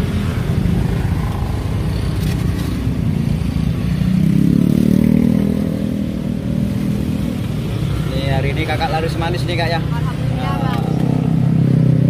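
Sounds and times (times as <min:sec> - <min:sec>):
road traffic rumble: 0:00.0 - 0:12.0
motorcycle engine passing: 0:03.6 - 0:06.3.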